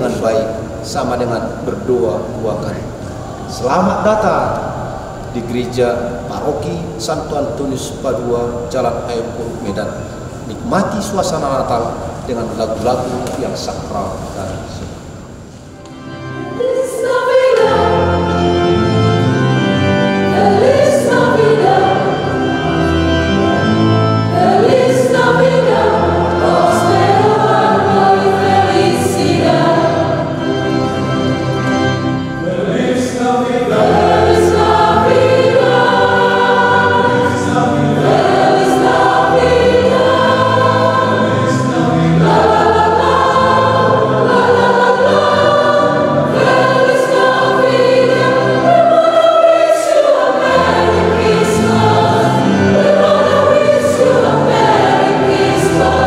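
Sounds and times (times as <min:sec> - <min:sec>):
choir singing: 0:15.8 - 0:56.0
electronic organ bass notes: 0:17.6 - 0:48.6.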